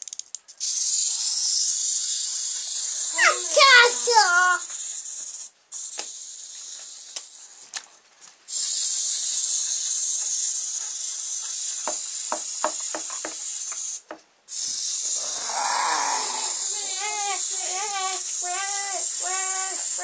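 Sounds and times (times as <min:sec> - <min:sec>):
plastic toy feet clicking on table: 0:00.0 - 0:00.5
clockwork toy motor whirring: 0:00.0 - 0:07.8, 0:08.5 - 0:20.0.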